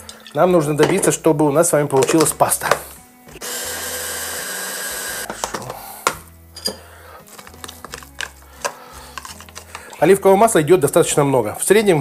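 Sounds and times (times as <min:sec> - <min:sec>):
hand blender motor chopping: 0:03.4 - 0:05.6
spoon scraping plastic bowl: 0:09.1 - 0:10.0.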